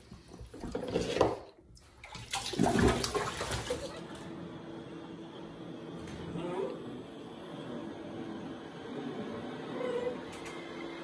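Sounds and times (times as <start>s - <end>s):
bathwater sloshing and splashing: 0.0s - 4.2s.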